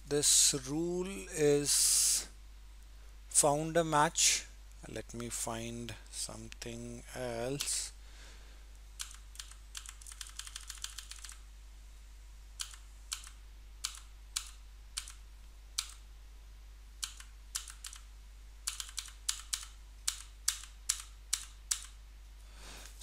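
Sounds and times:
computer keyboard key clicks: 9.0s - 11.4s, 18.7s - 22.0s.

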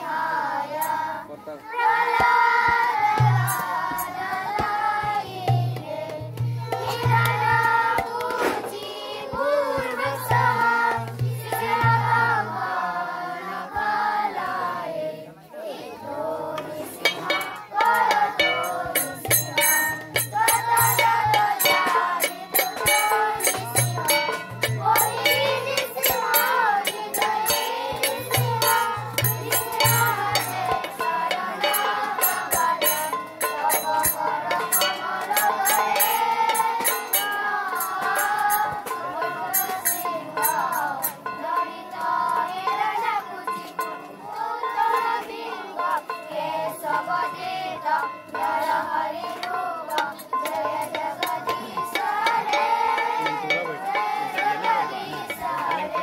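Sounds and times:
children singing chanted melody: 0.0s - 56.0s
hand drum low beats: 3.1s - 8.3s, 17.0s - 36.8s
hand cymbals ticking: 3.2s - 8.3s, 16.6s - 44.2s, 47.9s - 56.0s.

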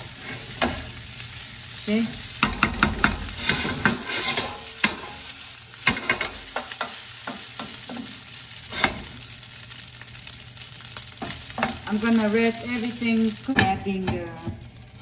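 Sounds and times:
frying sizzle: 0.0s - 15.0s
wooden spatula scraping and knocking pan: 2.4s - 5.3s, 5.9s - 9.2s, 11.2s - 12.1s.

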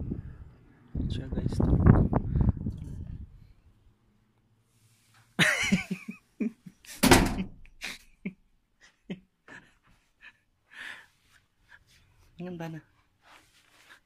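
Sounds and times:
loud thump: 7.0s - 7.6s.

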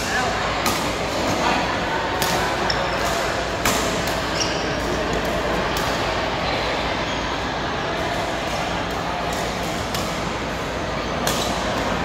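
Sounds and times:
racket striking shuttlecock: 0.0s - 1.4s, 2.1s - 6.0s, 9.3s - 10.6s, 11.2s - 11.8s
echoing hall background noise: 0.0s - 12.0s.

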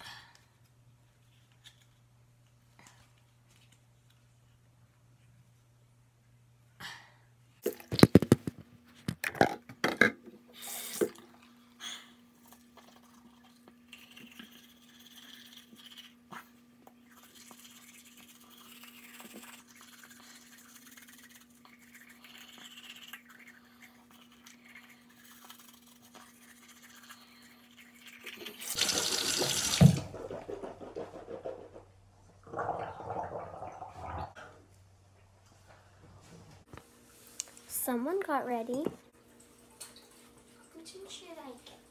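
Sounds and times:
toothbrush scrubbing teeth: 12.5s - 29.5s.

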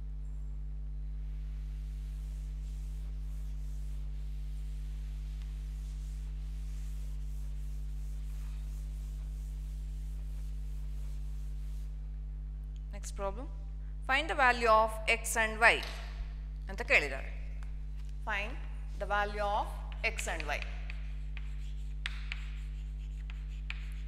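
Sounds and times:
electrical mains hum: 0.0s - 24.0s
duster wiping chalkboard: 1.2s - 12.0s, 19.0s - 24.0s.

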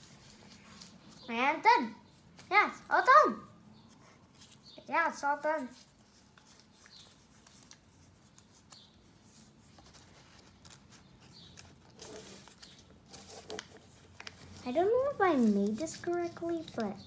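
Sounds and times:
paper boat clicks and rustles: 5.8s - 17.0s.

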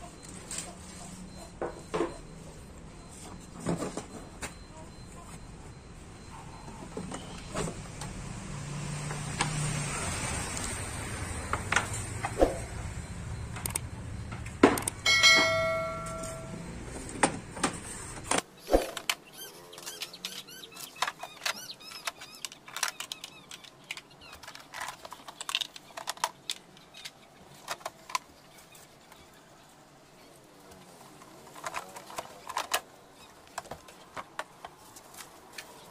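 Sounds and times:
sharp clicks and taps: 13.5s - 15.0s
plastic panels clattering: 20.8s - 28.4s, 30.8s - 35.8s.

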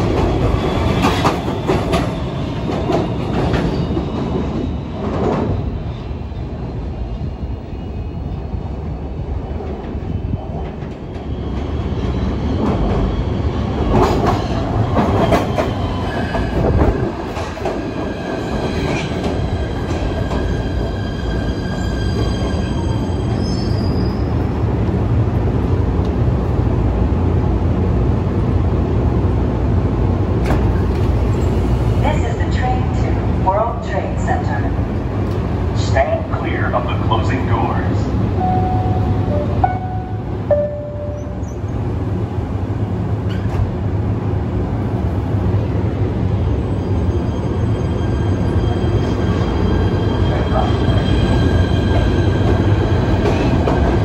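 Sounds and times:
train wheels rumbling: 0.0s - 54.0s
wheel squeal: 20.4s - 24.4s.

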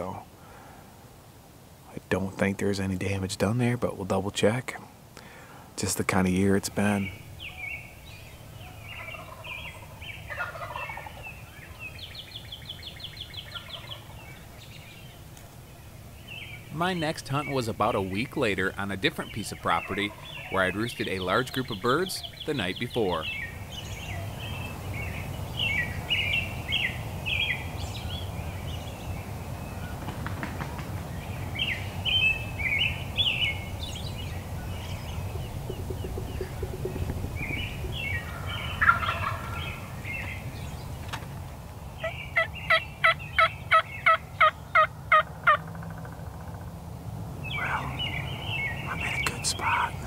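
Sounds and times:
turkeys gobbling: 8.7s - 11.8s, 13.3s - 14.1s, 16.8s - 23.5s, 34.6s - 40.4s, 42.1s - 46.7s
turkey yelps: 9.0s - 11.2s, 37.9s - 39.8s, 42.4s - 46.1s.

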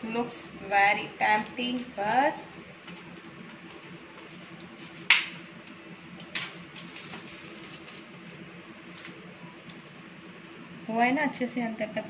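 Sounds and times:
bread crackling: 1.2s - 10.1s.

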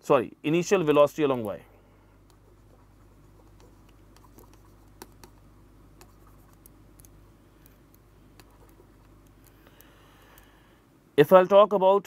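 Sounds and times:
pen tapping on tablet: 3.6s - 5.4s.

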